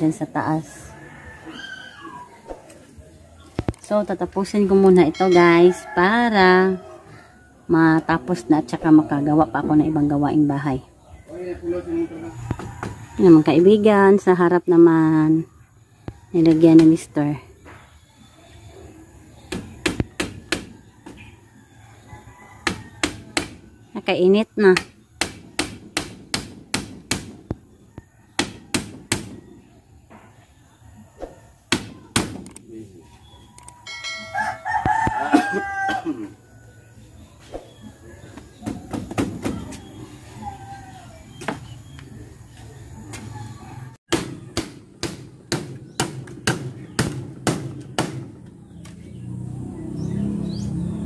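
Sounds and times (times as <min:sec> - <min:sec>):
hammer striking nails: 0:24.8 - 0:27.4.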